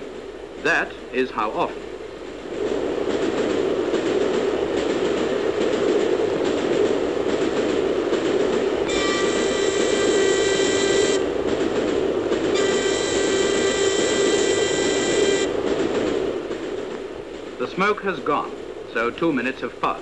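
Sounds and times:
steam train rumbling: 0.0s - 20.0s
high-pitched whistle tones: 8.9s - 11.2s, 12.6s - 15.5s.

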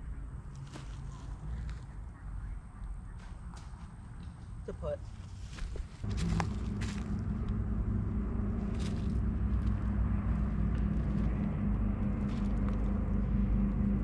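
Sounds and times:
motor engine running: 6.0s - 14.0s.

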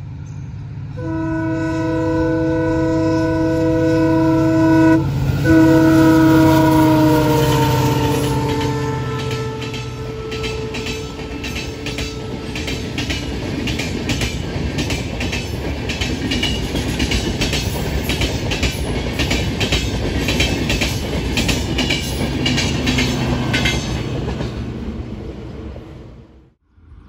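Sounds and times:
train wheels rumbling on rails: 0.0s - 26.3s
clickety-clack over rail joints: 7.6s - 25.0s.

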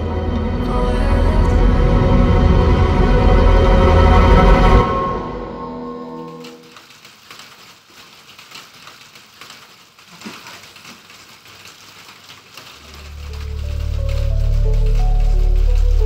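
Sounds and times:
low music: 0.0s - 6.6s, 13.0s - 16.0s
steady rain falling: 0.0s - 16.0s.

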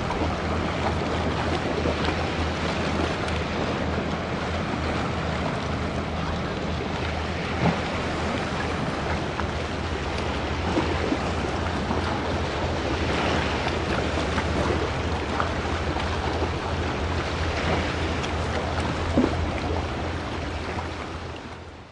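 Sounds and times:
choppy sea water: 0.0s - 21.9s
wind rumbling on microphone: 0.0s - 21.9s.

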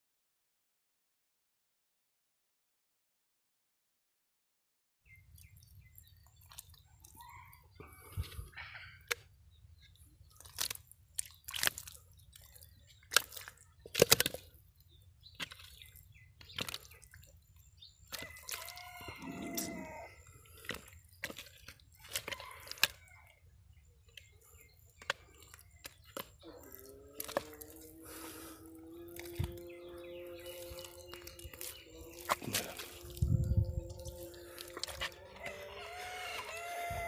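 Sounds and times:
wet mud squelches and slaps: 5.3s - 7.2s, 9.0s - 23.4s, 24.0s - 37.0s.

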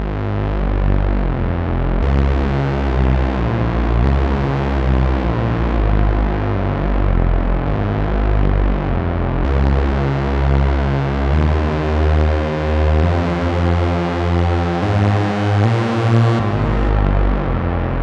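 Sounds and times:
synthesizer sustained chords: 0.0s - 18.0s.

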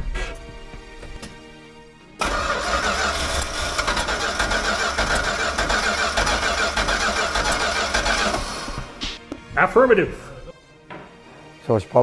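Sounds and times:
starter cranking engine: 2.2s - 8.9s.

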